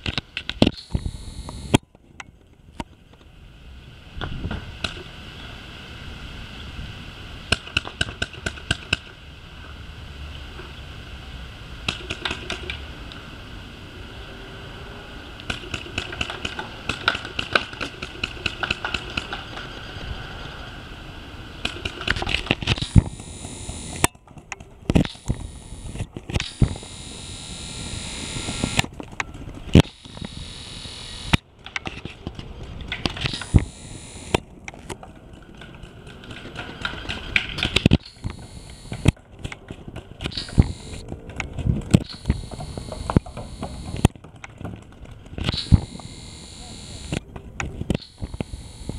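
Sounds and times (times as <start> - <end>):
paintball markers firing: 15.4 - 19.5.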